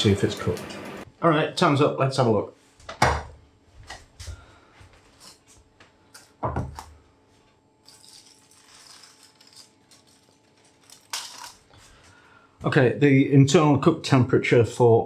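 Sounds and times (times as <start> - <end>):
aluminium foil crinkling: 7.8 - 12.0.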